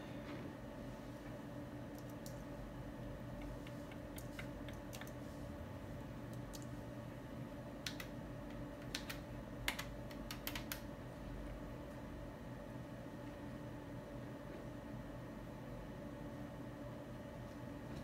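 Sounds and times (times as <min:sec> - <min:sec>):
steady low hum: 0:00.0 - 0:18.0
console keys clicking: 0:01.9 - 0:02.4, 0:03.4 - 0:05.2, 0:06.3 - 0:06.7, 0:07.8 - 0:10.9.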